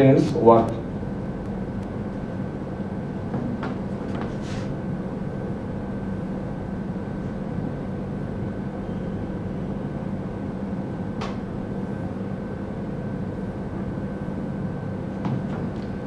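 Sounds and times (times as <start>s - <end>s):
mechanical room hum: 0.0s - 16.0s.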